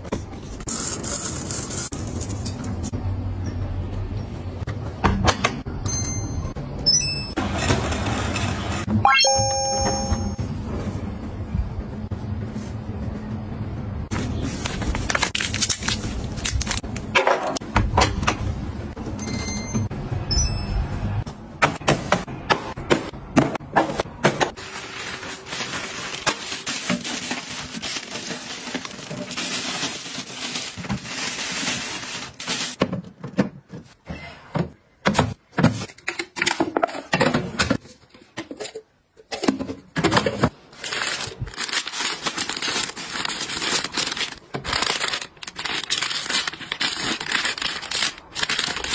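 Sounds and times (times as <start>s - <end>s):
short electronic beeps: 9.1s - 10.4s
plastic packaging rustling: 14.2s - 17.1s, 24.6s - 32.8s, 40.1s - 48.9s.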